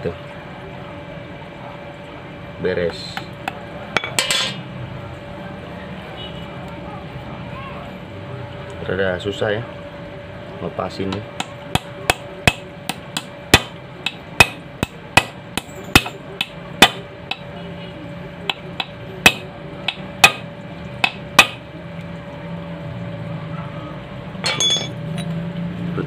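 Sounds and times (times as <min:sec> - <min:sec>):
hammer striking metal: 0:11.4 - 0:17.4, 0:18.5 - 0:20.4, 0:21.0 - 0:21.6, 0:24.4 - 0:25.3
metallic clatter: 0:24.4 - 0:25.4.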